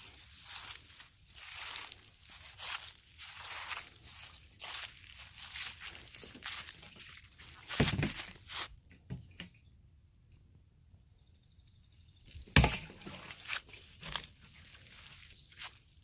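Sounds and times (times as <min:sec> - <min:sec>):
footsteps crunching on dry leaves: 0:00.0 - 0:08.8, 0:12.3 - 0:16.0.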